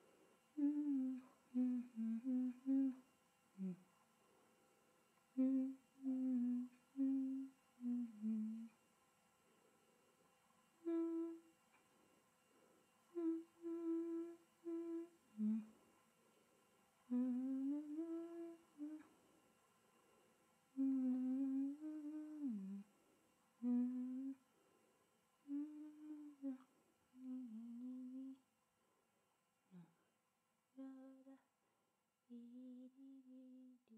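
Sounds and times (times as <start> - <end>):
person humming a slow tune: 0.0 - 3.8, 5.3 - 8.8, 10.8 - 11.5, 13.1 - 15.8, 17.1 - 19.2, 20.7 - 22.9, 23.6 - 24.4, 25.4 - 28.4, 29.7 - 30.1, 30.7 - 31.5, 32.2 - 33.9.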